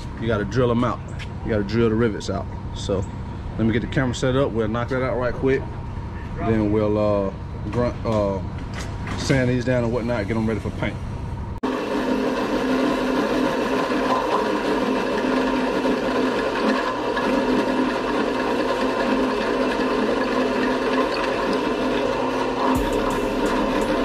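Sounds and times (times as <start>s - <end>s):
drill press drilling metal: 11.8s - 24.0s.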